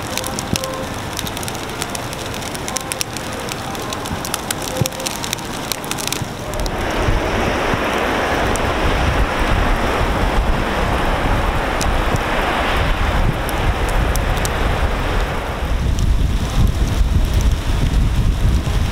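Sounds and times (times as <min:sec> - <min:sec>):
sleet pellets ticking: 0:00.0 - 0:06.8
wind rumbling on microphone: 0:00.0 - 0:18.9.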